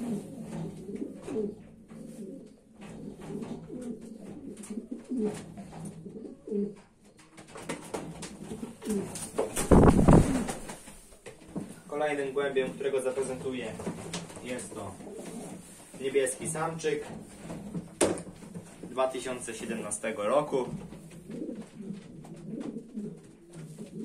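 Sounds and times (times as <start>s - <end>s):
pigeons cooing: 0.0s - 10.8s, 14.8s - 19.5s, 20.7s - 24.0s.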